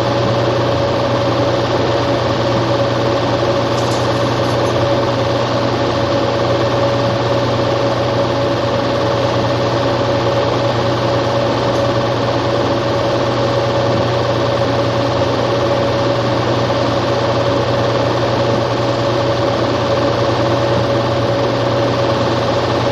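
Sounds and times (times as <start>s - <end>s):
machine hum: 0.0s - 22.9s
small machine clattering: 3.7s - 5.0s.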